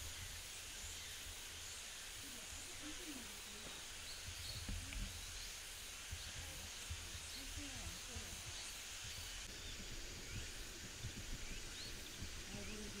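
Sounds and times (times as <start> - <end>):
steady high hiss: 0.0 - 13.0
faint distant voices: 2.1 - 9.8, 12.1 - 13.0
wind rumble on microphone: 2.2 - 13.0.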